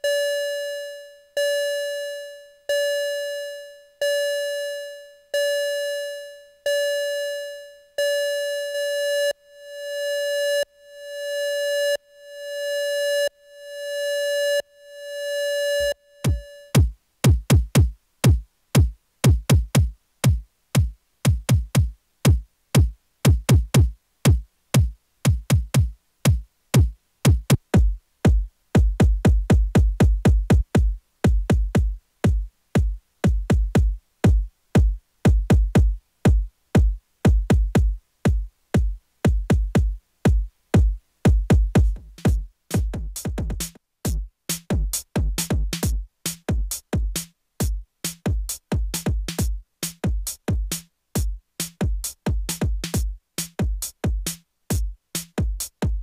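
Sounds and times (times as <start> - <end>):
electronic kick and percussion hits: 16.3 - 56.0.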